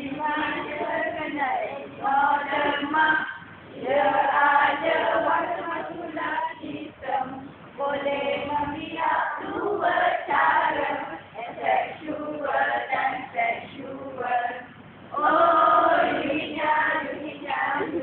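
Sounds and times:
women singing together: 0:00.0 - 0:18.0.

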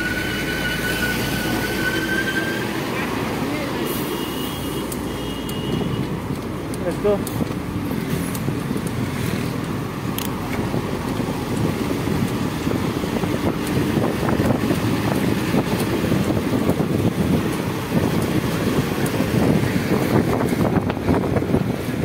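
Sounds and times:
bus running close by: 0:00.0 - 0:22.0
city road traffic rumble: 0:00.0 - 0:22.0
wind rushing over microphone: 0:05.8 - 0:22.0.

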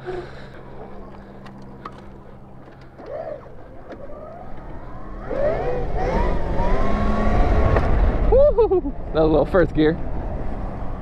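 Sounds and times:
electric motor whining: 0:01.0 - 0:08.2.

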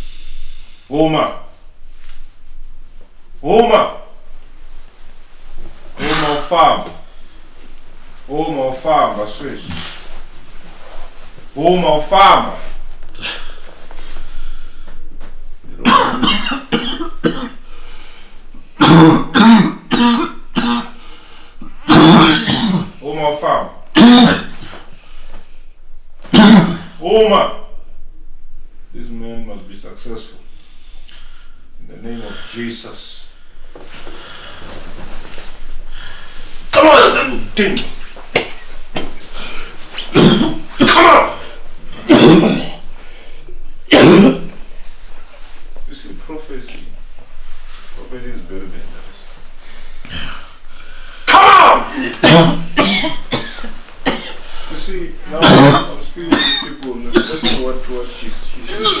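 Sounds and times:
person coughing: 0:15.8 - 0:17.6, 0:18.8 - 0:21.0, 0:21.8 - 0:23.0, 0:23.9 - 0:24.7, 0:26.2 - 0:27.0, 0:37.0 - 0:42.9, 0:43.9 - 0:44.6, 0:51.9 - 0:54.5, 0:55.3 - 0:57.8.

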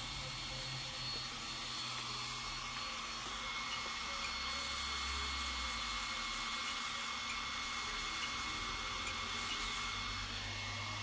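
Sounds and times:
small electric motor whirring: 0:00.0 - 0:11.0.

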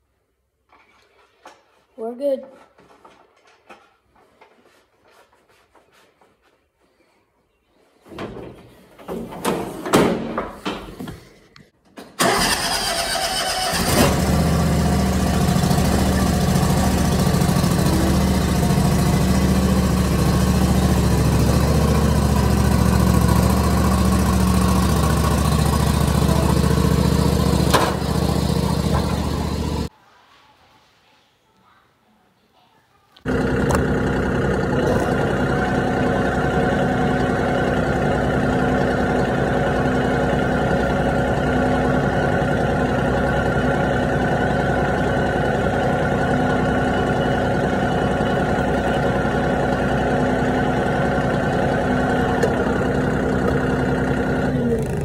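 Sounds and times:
riding lawn mower engine running: 0:12.2 - 0:29.9, 0:33.3 - 0:55.0.

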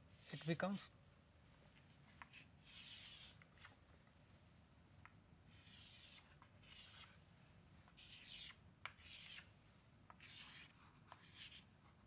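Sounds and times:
chalk scratching on chalkboard: 0:00.2 - 0:00.6, 0:02.2 - 0:03.4, 0:05.5 - 0:07.2, 0:07.9 - 0:09.5, 0:10.2 - 0:11.7.

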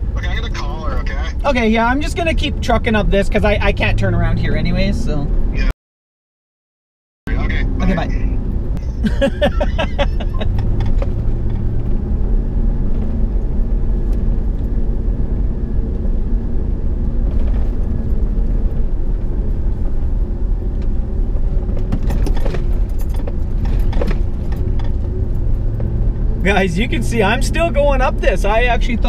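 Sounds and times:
truck engine pulling uphill: 0:07.3 - 0:29.0
tyre and road rumble: 0:07.3 - 0:29.0
sharp rattles and knocks: 0:10.5 - 0:12.0, 0:21.6 - 0:26.0.

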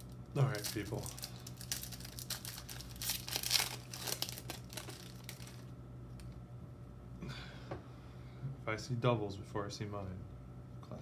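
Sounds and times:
foil wrapper crinkling and tearing: 0:00.0 - 0:06.4
steady low hum: 0:00.0 - 0:11.0.

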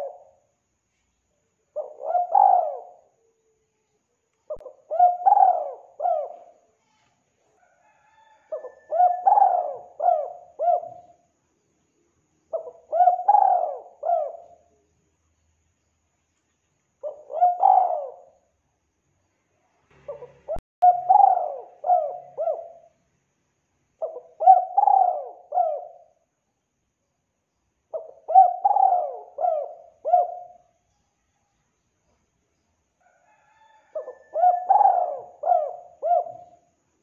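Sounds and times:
dove cooing: 0:00.0 - 0:00.4, 0:01.8 - 0:03.3, 0:04.5 - 0:06.7, 0:07.6 - 0:11.2, 0:12.5 - 0:14.7, 0:17.0 - 0:18.4, 0:20.0 - 0:23.0, 0:24.0 - 0:26.2, 0:27.9 - 0:30.7, 0:33.3 - 0:36.7.

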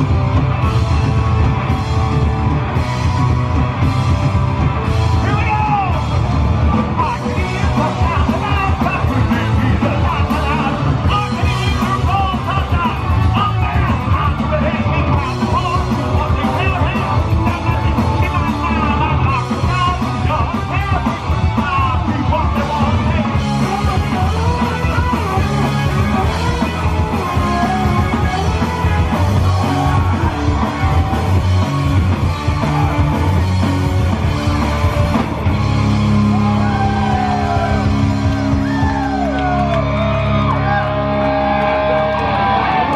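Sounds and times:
punk rock band playing: 0:00.0 - 0:42.9
singer shouting vocals: 0:05.1 - 0:06.2, 0:06.9 - 0:31.7.

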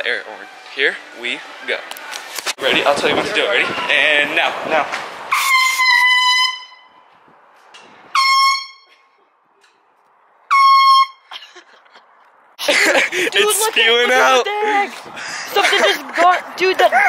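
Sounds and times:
aerosol air horn blasts: 0:05.3 - 0:07.1, 0:08.1 - 0:09.0, 0:10.5 - 0:11.2.

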